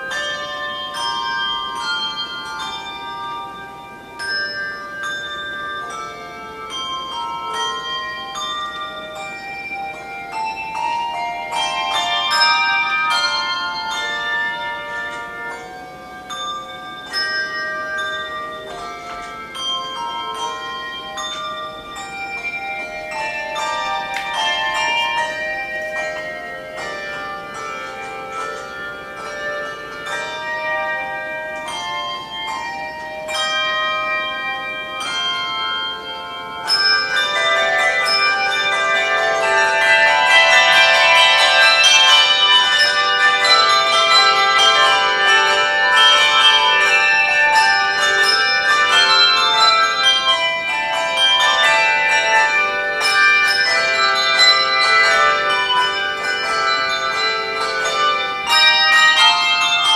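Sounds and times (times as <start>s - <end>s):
handbell choir ringing: 0.0s - 59.9s.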